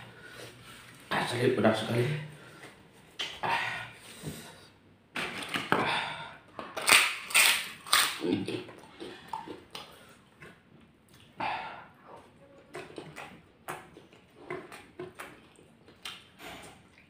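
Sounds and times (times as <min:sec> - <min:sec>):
crackers crunching: 0:06.6 - 0:10.0.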